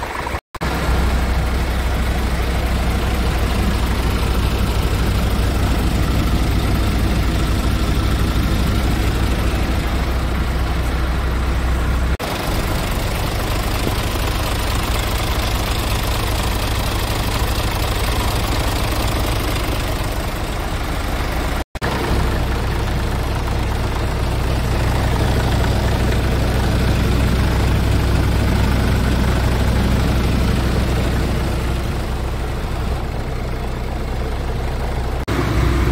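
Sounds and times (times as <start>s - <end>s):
diesel truck engine idling: 0.0s - 35.9s.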